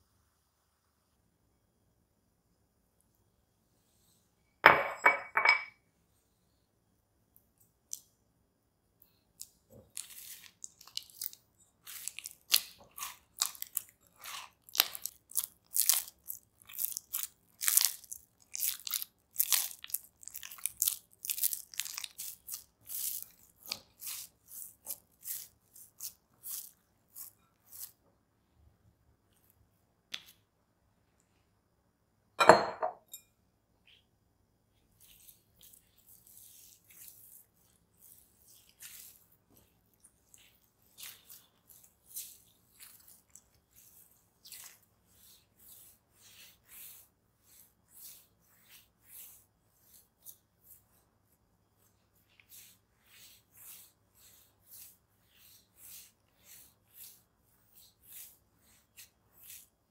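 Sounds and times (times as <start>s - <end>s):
wet squelching of dough kneaded: 9.3s - 28.2s, 34.7s - 59.9s.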